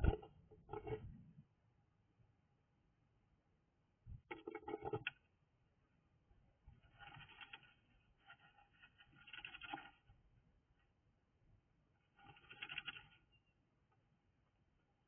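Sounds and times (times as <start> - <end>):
bird rustling nesting material: 6.7 - 10.2, 12.0 - 13.2.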